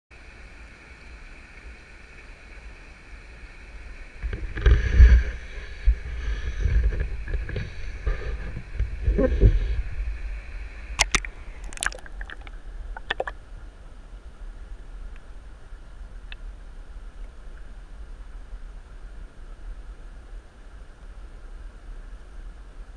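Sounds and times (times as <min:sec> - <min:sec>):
water sloshing and gurgling: 0:04.3 - 0:13.5
sharp clicks and knocks: 0:11.0 - 0:13.3.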